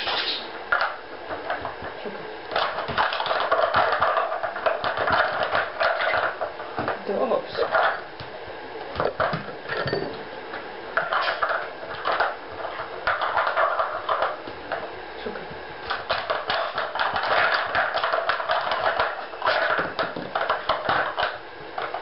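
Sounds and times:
plastic blocks clattering: 2.5s - 8.0s, 15.9s - 22.0s.

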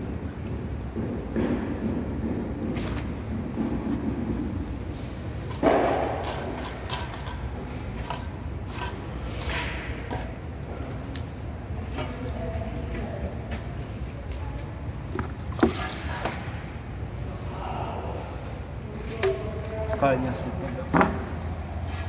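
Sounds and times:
trowel scraping wet mortar: 5.8s - 10.4s.

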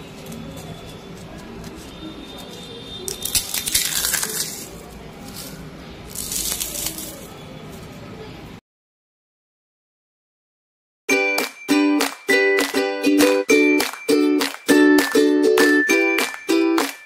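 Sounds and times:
crispy chip crunching in hand: 3.1s - 7.4s.

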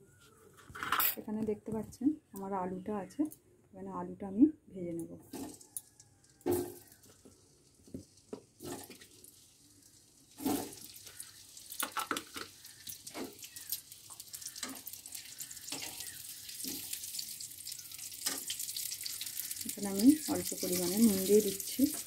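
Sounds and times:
oil sizzling and crackling: 5.3s - 22.0s
potatoes dropping into oil: 5.3s - 22.0s.

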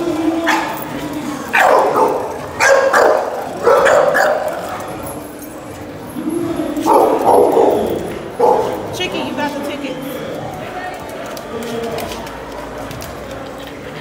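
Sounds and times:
dog barking: 1.5s - 4.6s, 6.8s - 8.8s.

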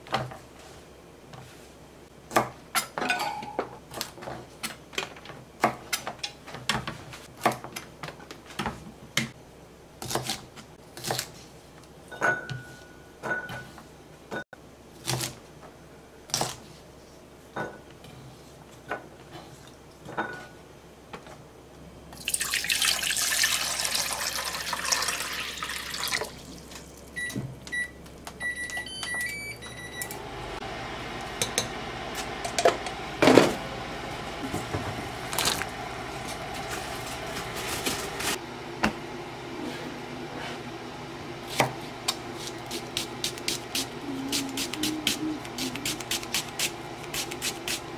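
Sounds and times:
hob humming: 30.0s - 47.9s.

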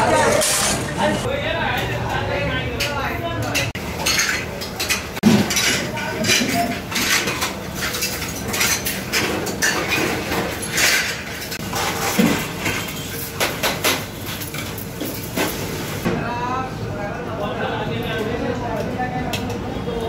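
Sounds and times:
background chatter: 0.0s - 7.1s, 16.1s - 20.0s
steel ladles clanking on pots: 2.8s - 16.0s.

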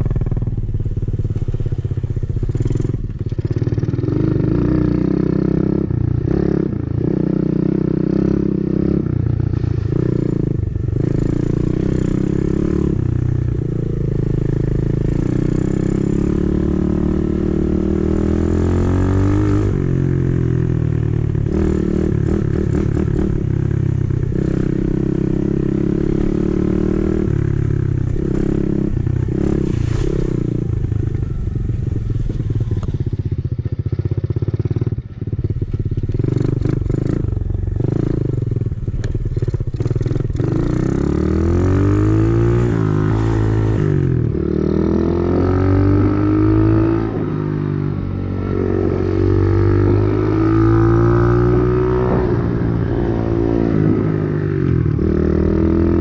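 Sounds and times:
dirt bike engine revving: 40.0s - 56.0s.

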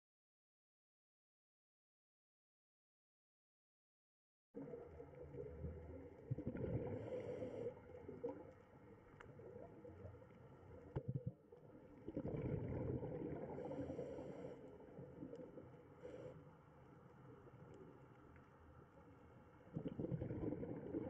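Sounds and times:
underwater gurgling rumble: 4.6s - 21.0s.

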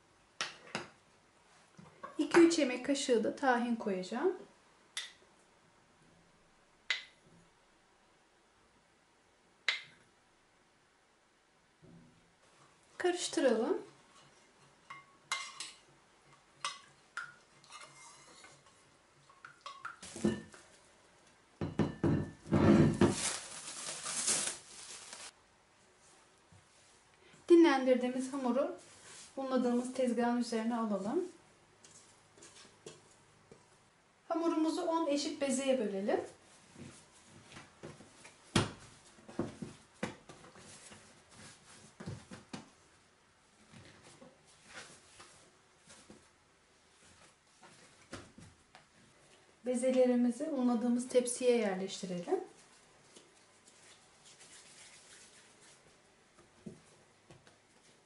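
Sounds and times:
bowl rustling and scraping: 17.5s - 19.0s, 22.4s - 25.3s, 28.2s - 29.9s, 31.8s - 33.2s, 52.6s - 56.0s.

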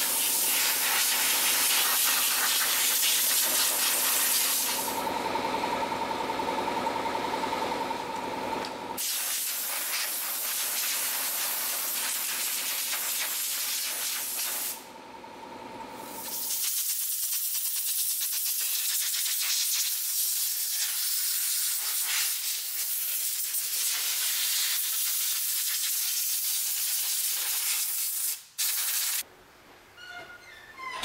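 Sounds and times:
compressed air hissing: 0.0s - 5.0s, 9.0s - 14.8s, 16.1s - 29.2s.

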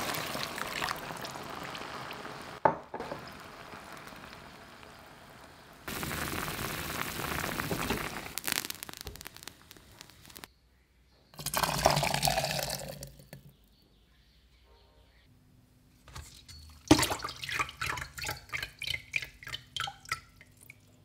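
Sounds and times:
broth simmering and bubbling: 0.0s - 10.5s, 11.4s - 13.4s, 16.4s - 21.0s
broth splashing into pot: 0.0s - 10.5s, 11.4s - 13.4s, 16.7s - 20.8s
steady hiss with crackles: 0.0s - 10.5s.

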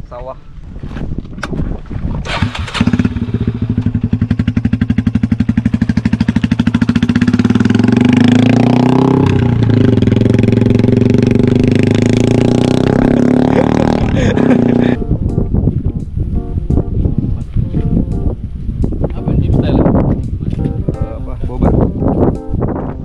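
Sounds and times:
motorcycle engine running: 2.3s - 15.0s.

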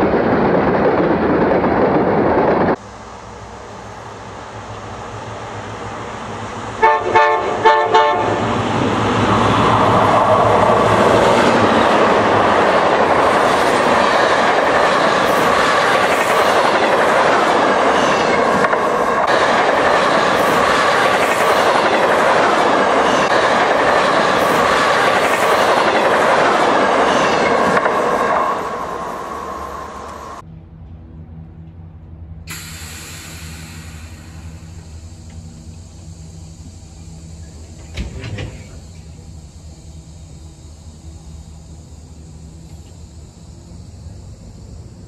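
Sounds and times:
model train horn blasts: 6.8s - 8.6s.

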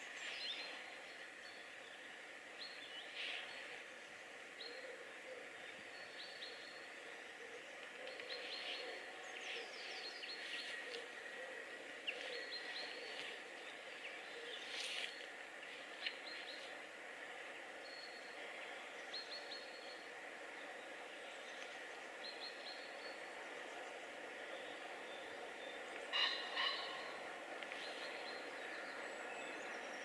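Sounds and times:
faint outdoor background: 0.0s - 30.0s
small birds chirping: 7.6s - 11.3s.

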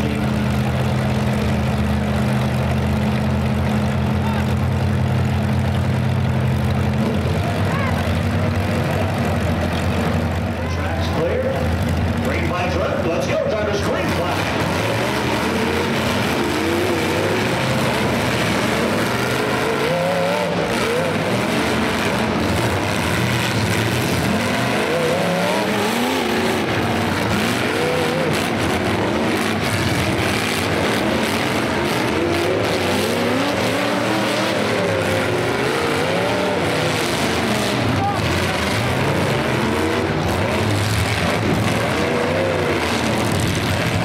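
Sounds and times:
car engines revving: 0.0s - 44.0s.

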